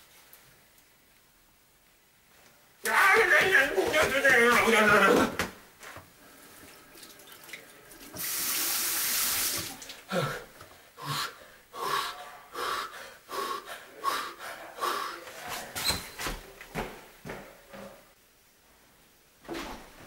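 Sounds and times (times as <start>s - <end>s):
man crying out sharply: 2.8s - 5.4s
sink tap running: 8.0s - 10.0s.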